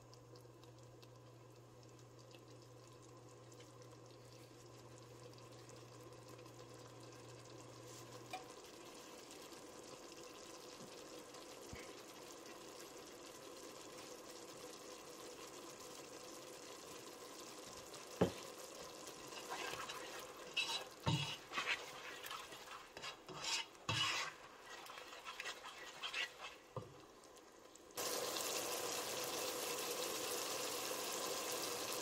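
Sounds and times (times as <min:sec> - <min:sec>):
curry simmering in a pot: 0:00.0 - 0:32.0
ladle stirring: 0:17.7 - 0:27.3.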